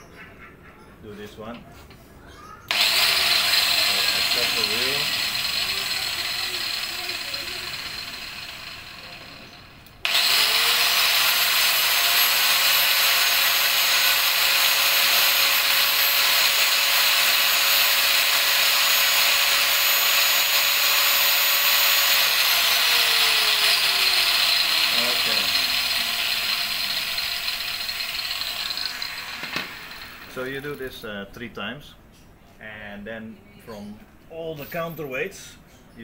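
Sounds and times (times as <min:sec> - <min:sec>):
angle grinder whining: 0:02.7 - 0:31.0.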